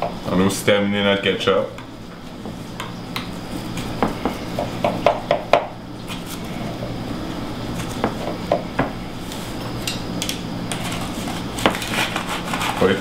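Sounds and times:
knife scraping a pie dish: 10.7 - 13.0.

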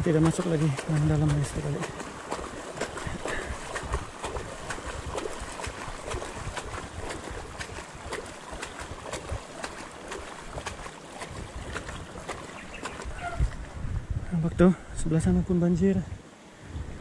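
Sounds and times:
water splashing around bicycle wheels: 0.0 - 13.6.

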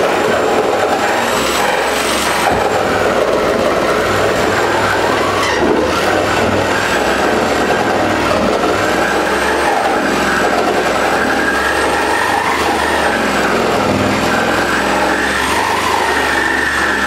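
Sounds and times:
electric jigsaw cutting wood: 0.0 - 17.0.

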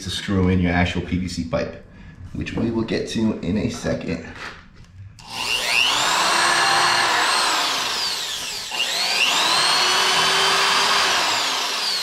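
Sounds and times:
electric drill boring into wood: 5.2 - 12.0.

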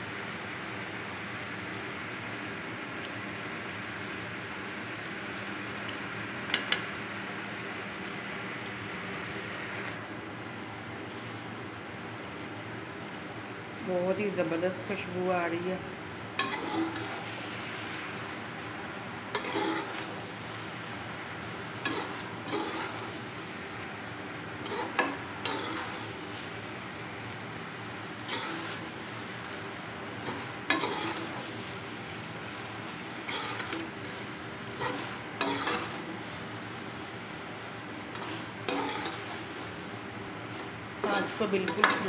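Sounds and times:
food sizzling in oil: 0.0 - 42.0
metal spoon scraping pot: 16.4 - 17.1, 19.4 - 20.0, 21.9 - 23.0, 24.6 - 26.0, 30.3 - 31.4, 33.3 - 33.9, 34.8 - 36.0, 38.1 - 39.3.

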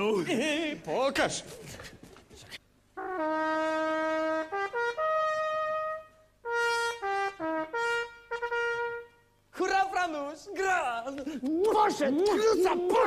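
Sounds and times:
trumpet playing a tune: 3.0 - 9.5.

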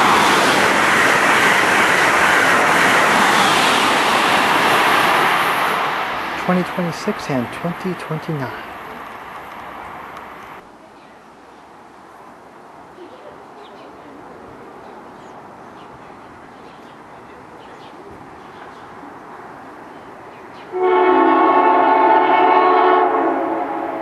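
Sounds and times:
train horn blast: 20.7 - 24.0.

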